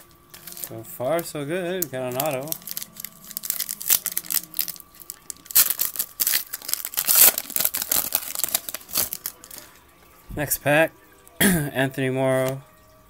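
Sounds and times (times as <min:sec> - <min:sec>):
foil wrapper crinkling and tearing: 0:00.3 - 0:09.8.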